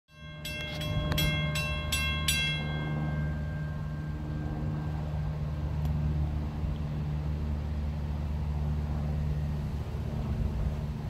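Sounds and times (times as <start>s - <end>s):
railroad crossing bell ringing: 0.1s - 5.7s
low engine drone: 0.1s - 11.0s.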